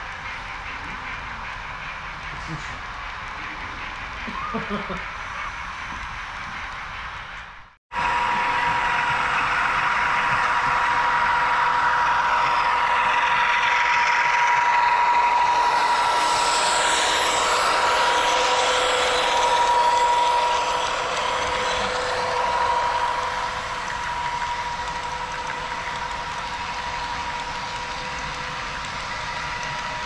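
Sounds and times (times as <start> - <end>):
model train wheels on rails: 0.0 - 30.0
high whine of running gear: 7.9 - 30.0.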